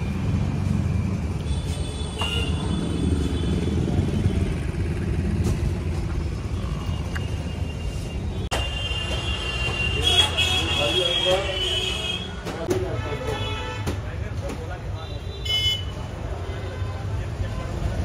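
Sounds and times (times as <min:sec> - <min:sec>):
low rumble of vehicles: 0:00.0 - 0:11.7.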